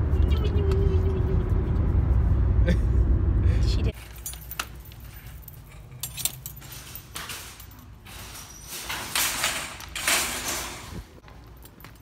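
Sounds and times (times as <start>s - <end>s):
basket wire handles clinking: 4.0s - 11.0s.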